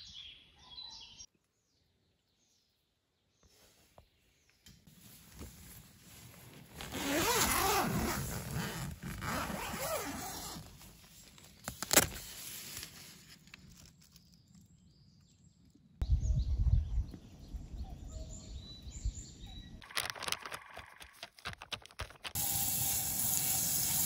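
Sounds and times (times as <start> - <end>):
tent zipper being unzipped: 5.3 - 11.0, 11.6 - 13.1.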